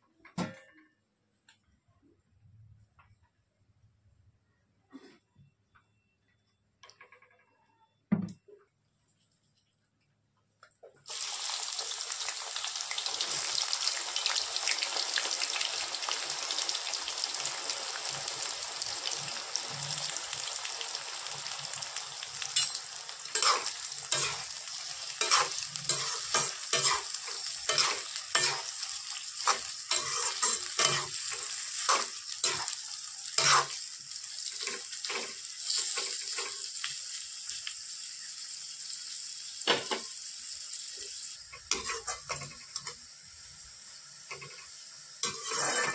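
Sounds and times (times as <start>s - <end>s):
onions sizzling in oil: 11.1s - 45.9s
metal spoon scraping pan: 22.5s - 24.5s, 25.2s - 28.8s, 29.4s - 32.8s, 33.4s - 33.8s, 41.1s - 42.9s, 44.3s - 45.9s.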